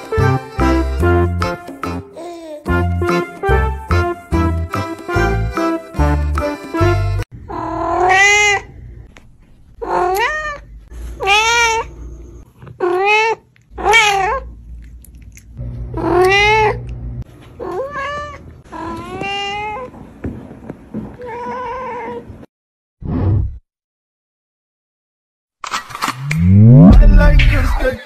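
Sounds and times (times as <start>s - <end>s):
cat meowing: 7.5s - 8.7s, 9.8s - 11.9s, 12.8s - 14.5s, 16.0s - 16.8s, 17.6s - 19.9s.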